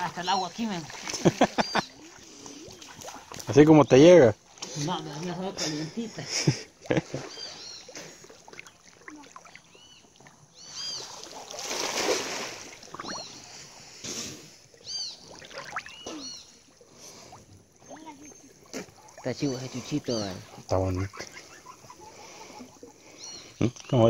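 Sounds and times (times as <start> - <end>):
water splashing and dripping: 0.0 - 24.0
high bird chirps: 7.3 - 7.9, 9.6 - 11.2, 14.8 - 16.6.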